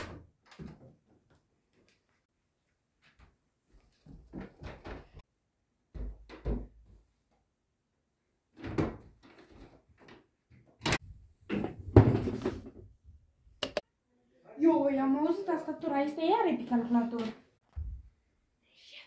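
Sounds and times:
footsteps on carpeted stairs: 0:02.7 - 0:05.2.

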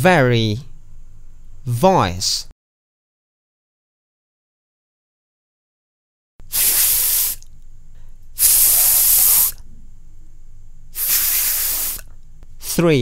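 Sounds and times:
person making breathy th hiss: 0:06.5 - 0:07.5, 0:08.4 - 0:09.6, 0:10.9 - 0:12.8.

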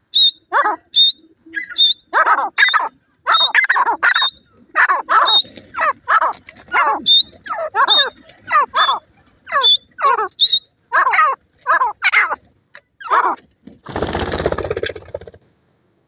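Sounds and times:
francolin harsh calls: 0:00.0 - 0:12.4
thin high peeps: 0:00.2 - 0:12.4
rapid rattling noise: 0:13.6 - 0:15.5.

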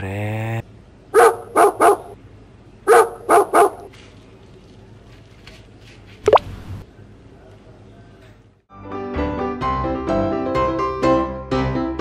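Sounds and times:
dog barking: 0:01.1 - 0:02.2, 0:02.9 - 0:03.9.

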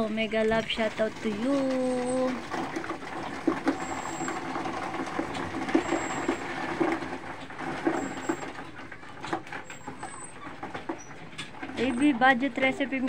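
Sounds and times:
knocks and clatter: 0:00.0 - 0:13.0.

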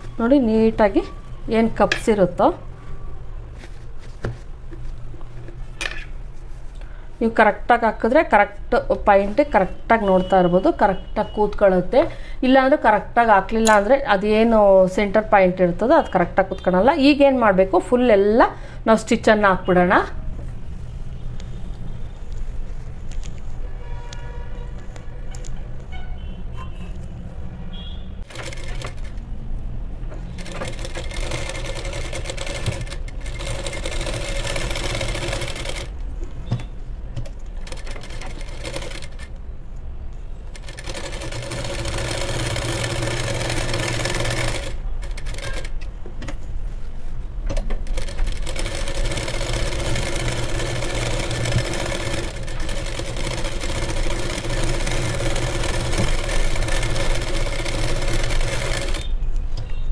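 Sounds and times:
sewing machine stitching: 0:28.2 - 0:29.2, 0:30.2 - 0:35.9, 0:37.6 - 0:39.3, 0:40.5 - 0:45.8, 0:47.8 - 0:59.1.

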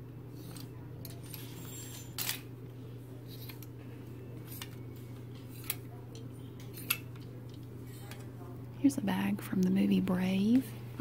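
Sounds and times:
plastic hangers clicking on metal rail: 0:05.5 - 0:08.2.

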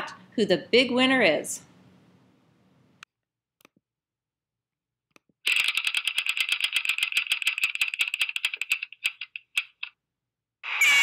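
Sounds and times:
rapid ticking clicks: 0:05.5 - 0:09.9.

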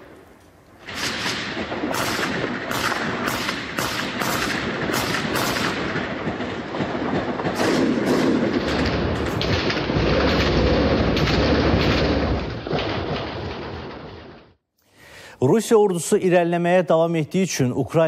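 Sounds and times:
gunshots: 0:00.8 - 0:14.6.

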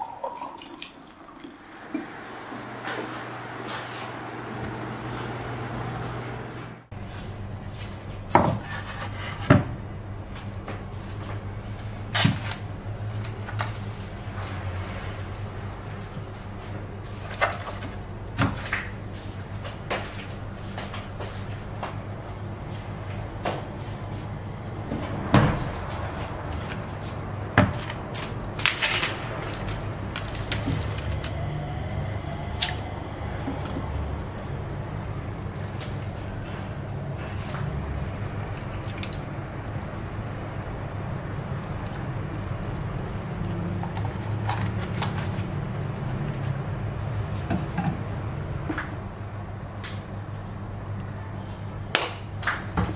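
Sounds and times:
plastic cling film crackle: 0:27.8 - 0:31.5.

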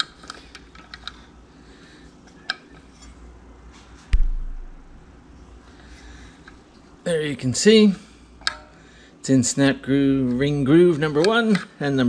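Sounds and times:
heavy thump: 0:04.1 - 0:05.0.

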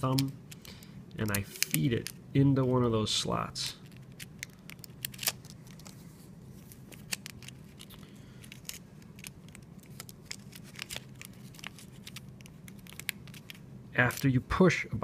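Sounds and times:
low steady hum: 0:00.0 - 0:15.0
film and camera parts clicking: 0:03.8 - 0:06.0, 0:06.7 - 0:14.2.

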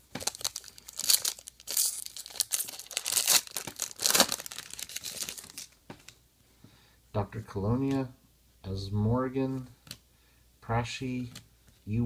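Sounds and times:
foil wrapper tearing and crinkling: 0:00.0 - 0:05.8.

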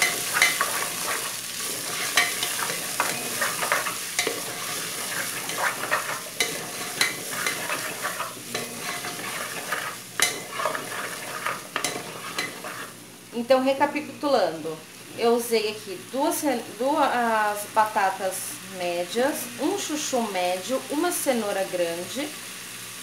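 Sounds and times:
wooden spoon scraping pot: 0:00.0 - 0:13.0
vegetables sizzling in oil: 0:00.0 - 0:23.0.

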